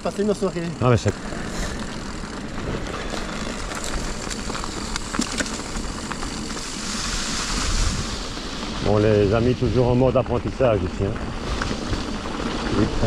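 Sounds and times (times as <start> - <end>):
bike clicks and rattles: 0.0 - 13.0
tyre and wind rush: 5.7 - 13.0.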